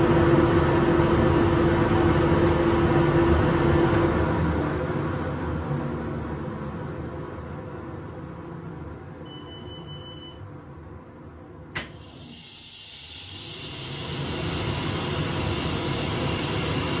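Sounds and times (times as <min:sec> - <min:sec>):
short electronic beep: 0:09.2 - 0:10.5
sharp click: 0:11.7 - 0:12.0
extraction system mechanical noise: 0:11.8 - 0:17.0
loud hiss: 0:12.0 - 0:17.0.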